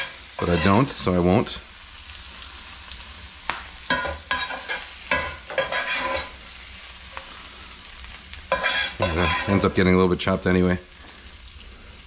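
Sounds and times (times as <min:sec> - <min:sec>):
metal spatula scraping skillet: 0:00.0 - 0:01.1, 0:03.9 - 0:06.4, 0:08.5 - 0:09.8
meat sizzling in pan: 0:00.0 - 0:12.0.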